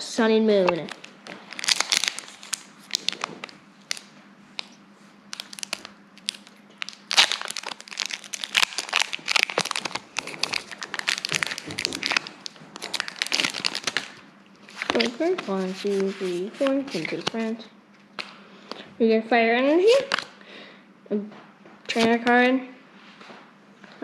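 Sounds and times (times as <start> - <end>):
foil wrapper crinkling and tearing: 0.6 - 17.6, 19.9 - 20.3.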